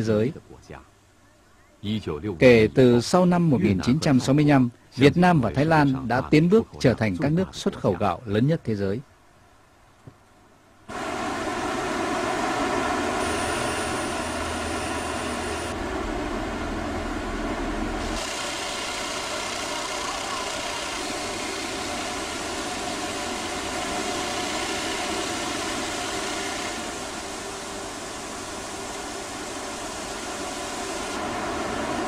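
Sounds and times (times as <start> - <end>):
faint high whine: 10.5 - 32.0
mill machinery humming and whirring: 10.9 - 32.0.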